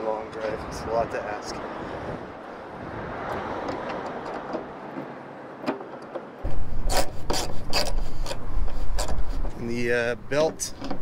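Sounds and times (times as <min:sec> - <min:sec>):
sharp clicks and knocks: 0:03.3 - 0:09.6, 0:10.4 - 0:11.0
screwdriver scraping and turning screw: 0:06.4 - 0:09.7, 0:10.4 - 0:11.0.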